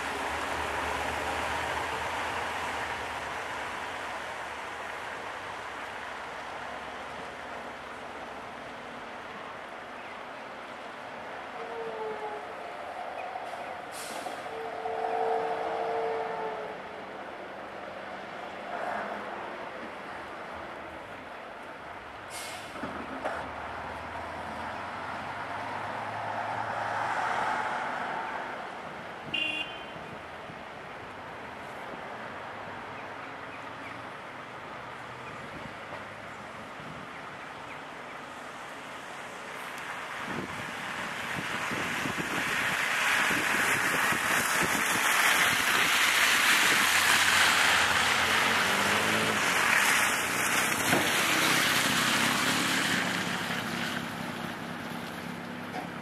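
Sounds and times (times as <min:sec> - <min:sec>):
diesel engine and hydraulics: 0:12.8 - 0:15.0, 0:22.1 - 0:29.5
diesel engine revving: 0:46.7 - 0:53.5.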